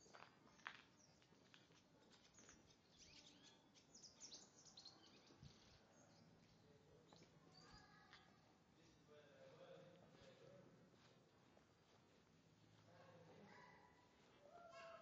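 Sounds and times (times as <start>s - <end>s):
faint birds chirping: 0.0s - 10.6s.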